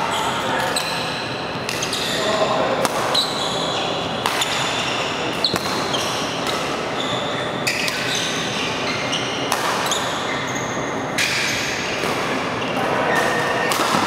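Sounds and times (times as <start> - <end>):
rackets striking shuttlecock: 2.8 - 3.3, 4.2 - 6.8, 9.4 - 10.1, 13.2 - 14.0
shoes squeaking on floor: 3.1 - 12.0.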